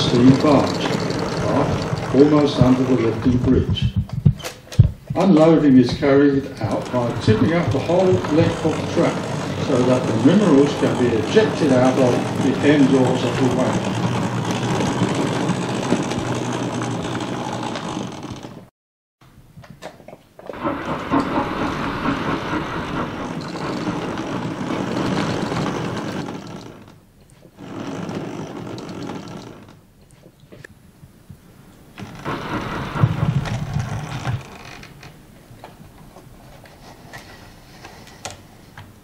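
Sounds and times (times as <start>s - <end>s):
model train motor whirring: 0.0s - 3.5s, 5.9s - 18.6s, 20.6s - 27.0s, 27.6s - 29.8s.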